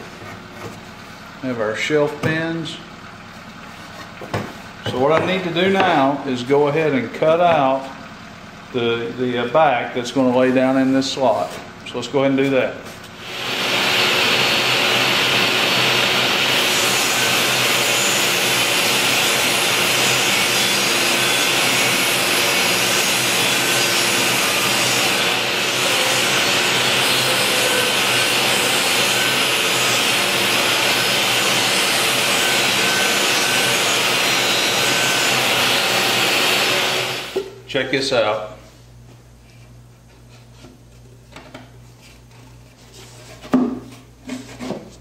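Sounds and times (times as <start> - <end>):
table saw cutting plywood: 13.1 - 37.5.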